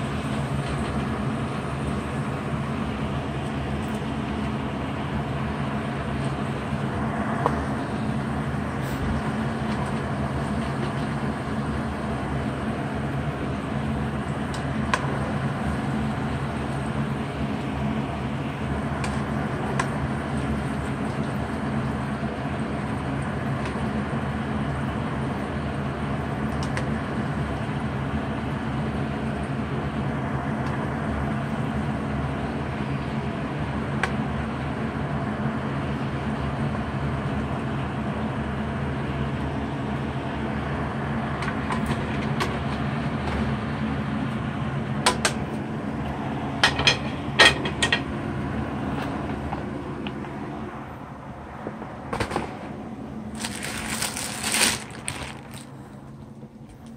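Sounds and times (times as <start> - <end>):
fries clattering in plastic colander: 53.4 - 55.8.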